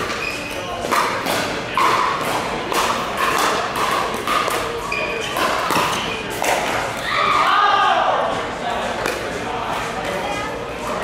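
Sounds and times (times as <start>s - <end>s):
paddles hitting plastic ball: 0.8s - 7.0s.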